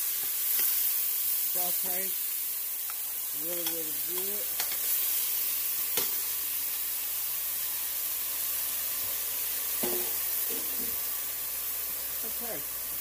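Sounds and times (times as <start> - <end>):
vegetables sizzling in hot oil: 0.0 - 13.0.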